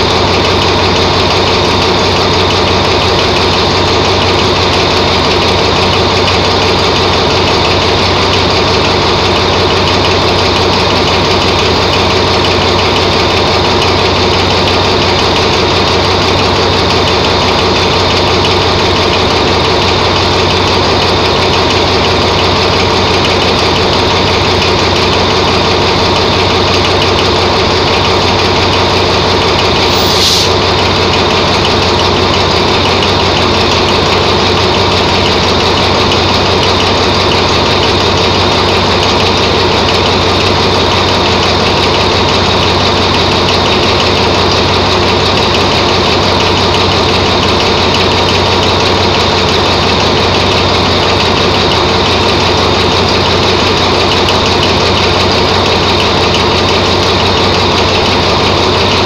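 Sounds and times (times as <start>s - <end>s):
diesel locomotive engine idling: 0.0s - 59.0s
high hiss: 29.9s - 30.6s.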